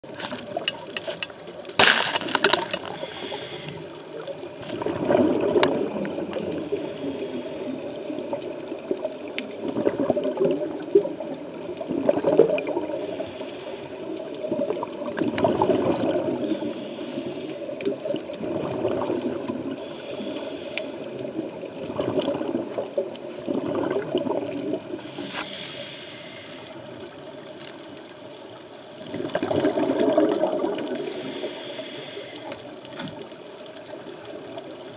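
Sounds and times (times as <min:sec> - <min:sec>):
scuba regulator inhalation hiss: 0:02.8 - 0:04.0, 0:06.5 - 0:08.1, 0:12.8 - 0:14.2, 0:16.4 - 0:17.8, 0:19.8 - 0:21.4, 0:25.0 - 0:26.8, 0:30.8 - 0:32.7
exhaled bubbles rumbling: 0:04.2 - 0:13.1, 0:14.0 - 0:16.8, 0:17.7 - 0:20.0, 0:21.0 - 0:25.2, 0:29.0 - 0:31.2.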